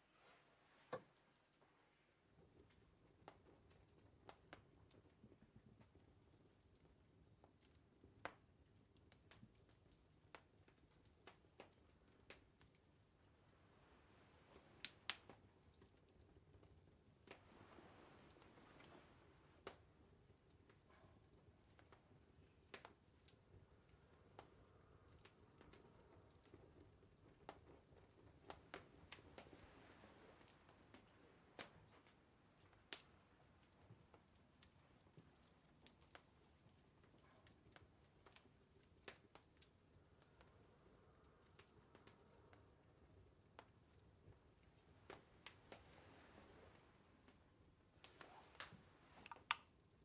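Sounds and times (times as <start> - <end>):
low room hum: 0.0 - 50.0
wood fire crackling: 0.0 - 50.0.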